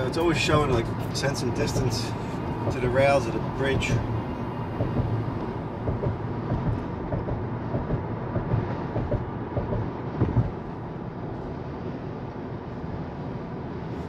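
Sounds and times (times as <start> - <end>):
road and tyre noise: 0.0 - 14.0
light thumps: 4.7 - 5.2, 5.8 - 10.6.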